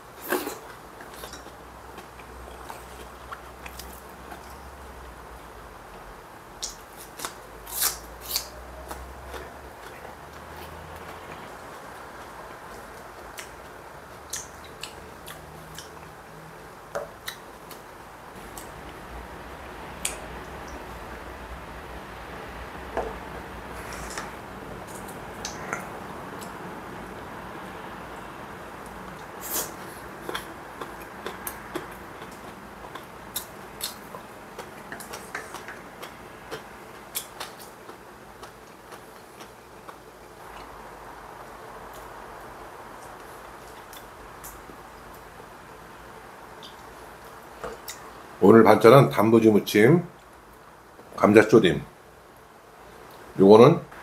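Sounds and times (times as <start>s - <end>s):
low room noise: 0.0s - 54.0s
steady low hiss: 0.0s - 54.0s
chewing crunchy food: 0.2s - 4.6s, 29.1s - 40.8s.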